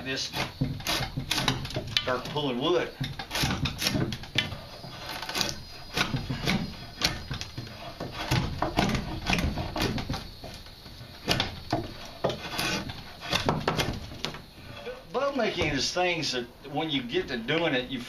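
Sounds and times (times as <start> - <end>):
drawknife shaving wood: 0.0 - 15.0.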